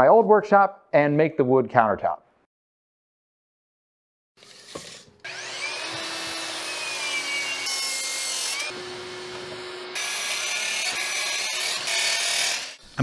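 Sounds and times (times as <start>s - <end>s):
saw blade cutting wood: 4.4s - 13.0s
miter saw motor whine: 5.2s - 11.6s.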